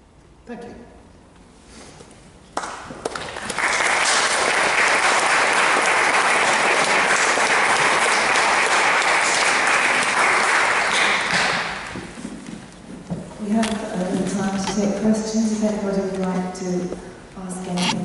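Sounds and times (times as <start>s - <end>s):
audience applauding: 2.6s - 12.2s.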